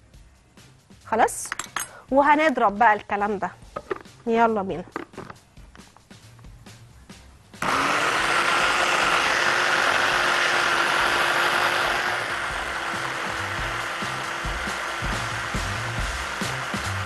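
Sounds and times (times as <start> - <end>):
hand blender motor running: 7.6 - 17.0.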